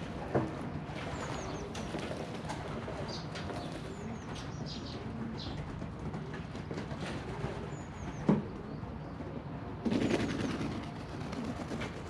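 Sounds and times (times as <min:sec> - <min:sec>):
pigeons splashing in water: 0:00.0 - 0:04.3.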